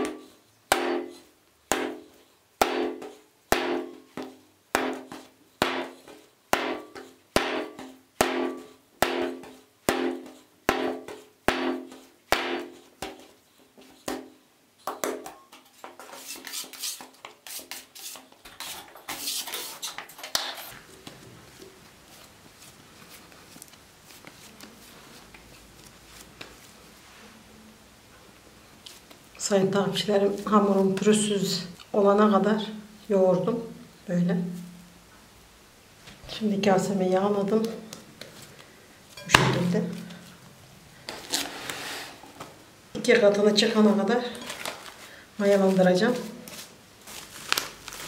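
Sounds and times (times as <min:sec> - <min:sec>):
hands rubbing and patting in flour: 0:20.7 - 0:27.5.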